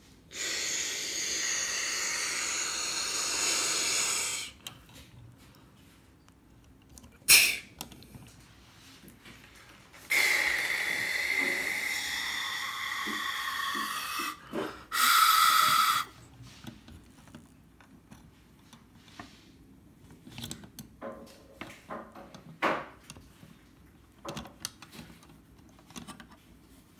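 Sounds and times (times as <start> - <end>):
loud hiss with faint whistle: 10.1 - 12.3, 14.9 - 16.1.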